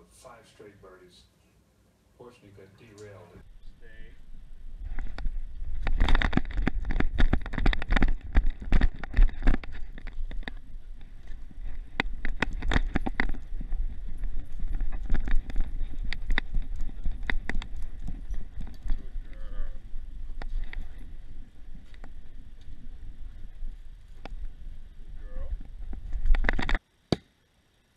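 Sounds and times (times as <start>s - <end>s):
low microphone rumble: 3.4s - 26.8s
camera knocks and rattles: 4.8s - 24.7s, 25.5s - 26.8s.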